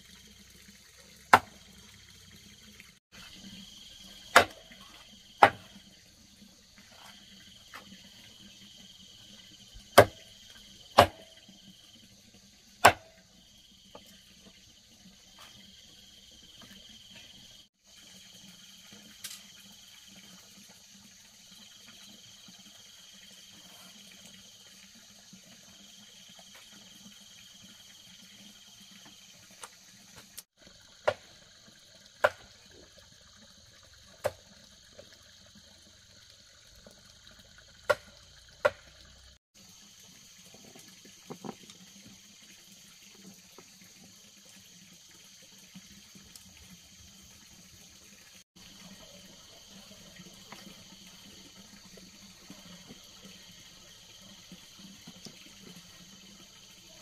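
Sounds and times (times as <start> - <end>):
insects chirping: 0.0 - 57.0.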